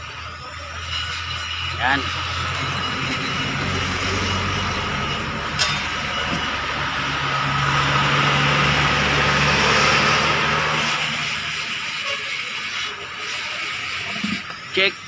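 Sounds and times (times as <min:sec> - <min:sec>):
vehicle engine running: 0:00.0 - 0:11.7.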